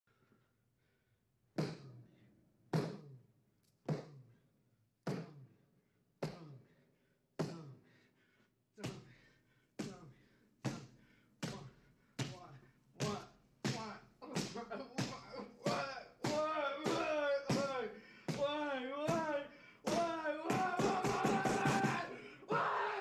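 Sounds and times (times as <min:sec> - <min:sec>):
fists pounding a wall: 0:19.9 - 0:22.0.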